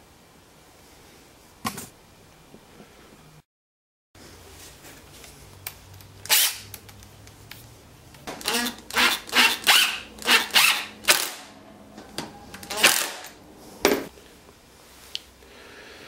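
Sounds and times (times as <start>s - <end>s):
impact driver driving screws: 6.3s - 6.7s, 8.4s - 11.5s, 12.6s - 13.3s.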